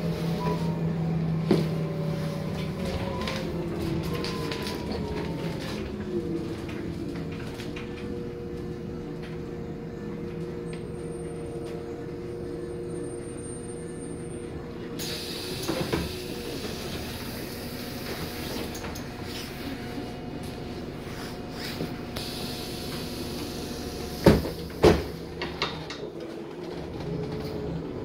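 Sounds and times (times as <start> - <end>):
bus drivetrain hum with whine: 0.0 - 28.0
pneumatic door clunk: 24.2 - 25.5.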